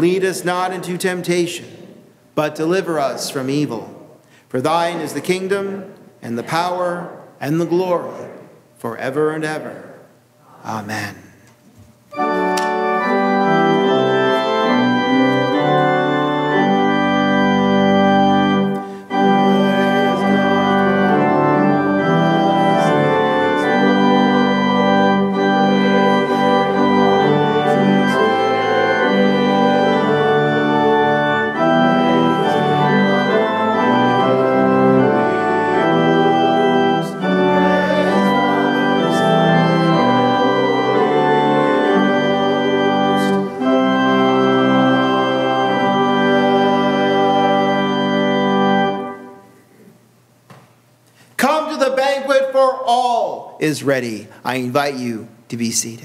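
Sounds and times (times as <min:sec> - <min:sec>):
organ playing sustained chords: 0:00.0 - 0:11.2, 0:12.1 - 0:50.4, 0:51.4 - 0:55.8.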